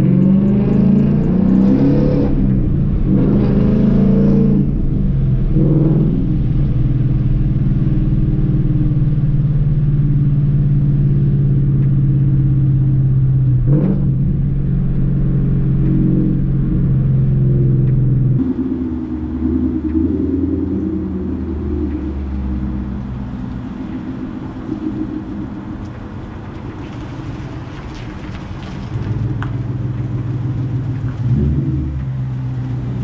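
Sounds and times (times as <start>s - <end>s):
car engine revving: 0.0s - 33.0s.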